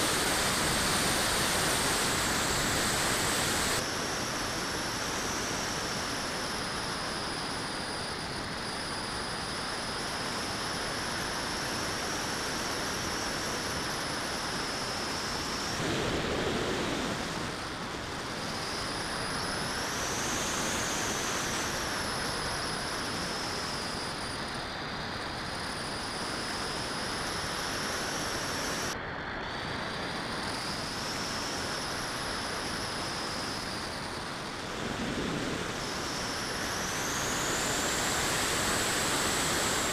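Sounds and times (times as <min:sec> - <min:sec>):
wind rushing over camera: 0:00.0 - 0:04.4, 0:15.2 - 0:25.2, 0:31.9 - 0:39.9.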